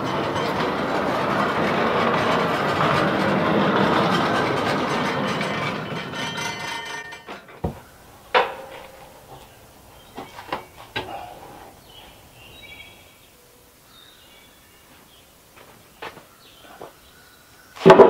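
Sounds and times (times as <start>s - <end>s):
wooden knocks: 0.0s - 11.8s
band sawmill cutting log: 0.0s - 12.9s.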